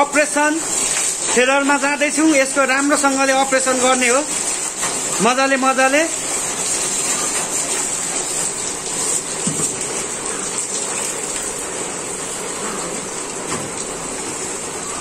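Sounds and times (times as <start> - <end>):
water pouring and splashing: 0.0 - 15.0.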